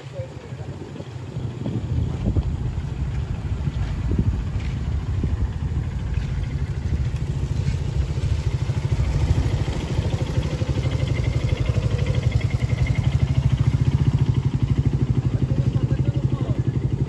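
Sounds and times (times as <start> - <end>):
small motorcycle engines: 0.0 - 17.0.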